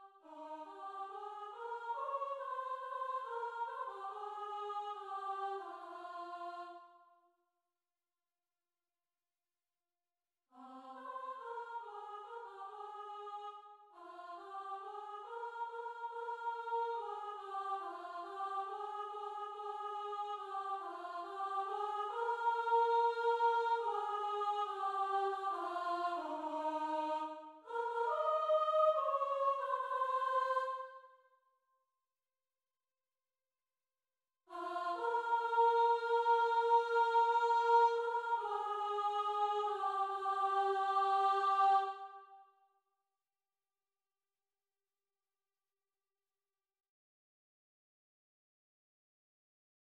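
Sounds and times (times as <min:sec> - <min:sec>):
unaccompanied soprano singing: 0:00.0 - 0:06.9, 0:10.6 - 0:31.0, 0:34.5 - 0:42.2.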